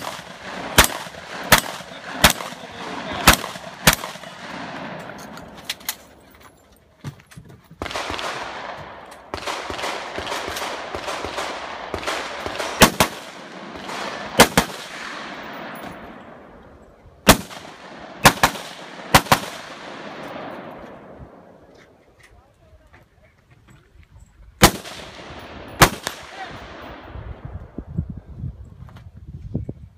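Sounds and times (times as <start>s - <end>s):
loud gunshots: 0.0s - 5.0s, 7.8s - 15.8s, 17.2s - 20.6s, 24.6s - 27.0s.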